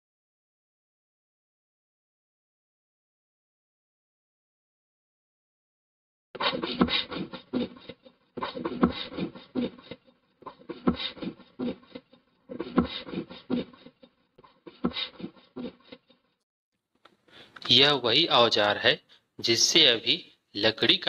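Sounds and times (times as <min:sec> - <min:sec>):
hand saw cutting wood: 0:06.4 - 0:09.9, 0:10.5 - 0:11.9, 0:12.5 - 0:13.9.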